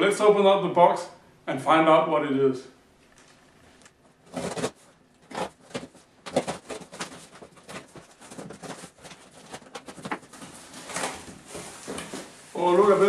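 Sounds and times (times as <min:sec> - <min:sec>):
cardboard box rustling: 0:04.3 - 0:13.0.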